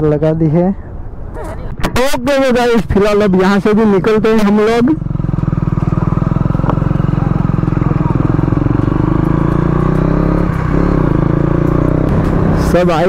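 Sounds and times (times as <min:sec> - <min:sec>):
motorcycle engine running: 0:03.0 - 0:13.0.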